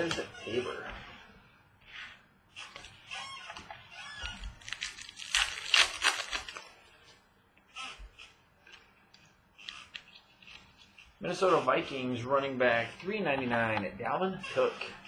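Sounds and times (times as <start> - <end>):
foil wrapper crinkling: 4.5 - 6.8.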